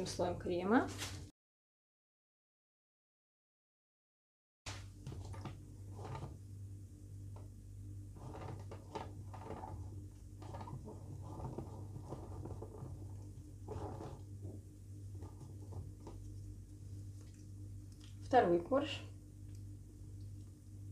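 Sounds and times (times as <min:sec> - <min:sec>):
steady low hum: 0:04.7 - 0:20.9
spatula scraping cream: 0:05.0 - 0:06.4, 0:08.2 - 0:16.4.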